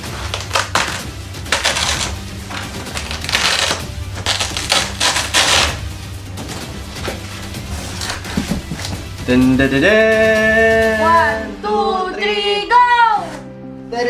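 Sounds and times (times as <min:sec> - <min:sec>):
cardboard and plastic strap scraping: 0:00.0 - 0:05.9, 0:07.0 - 0:09.0
background music: 0:00.0 - 0:14.0.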